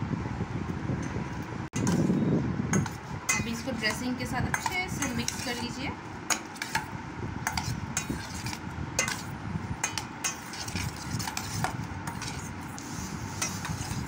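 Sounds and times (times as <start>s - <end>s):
spoon clinking in steel bowl: 2.8s - 6.8s, 7.5s - 11.4s.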